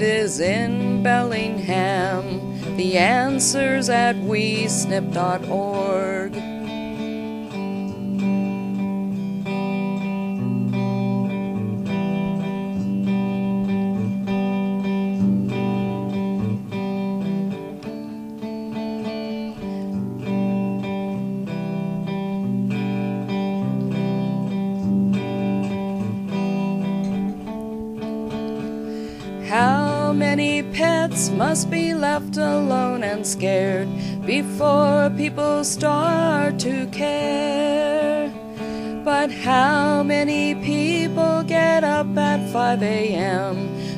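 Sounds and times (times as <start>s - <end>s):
person singing: 0.0s - 10.1s, 28.5s - 43.9s
acoustic guitar strumming: 0.0s - 43.9s.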